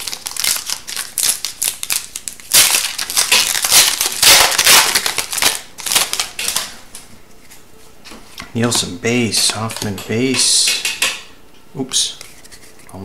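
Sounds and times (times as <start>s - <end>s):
foil wrapper crackling: 0.0s - 6.8s.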